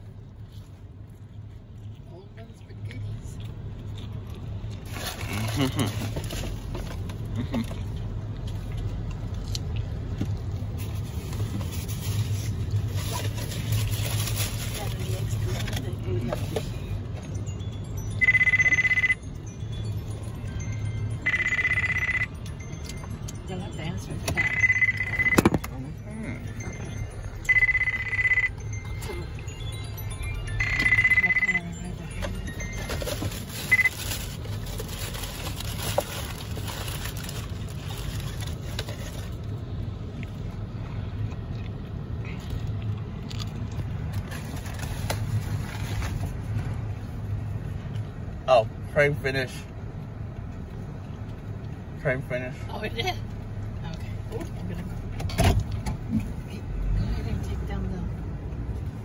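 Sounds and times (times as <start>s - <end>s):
car hum: 0.0s - 59.0s
electronic trilling alert tone: 18.2s - 19.2s, 21.0s - 22.3s, 24.3s - 25.6s, 26.2s - 32.9s.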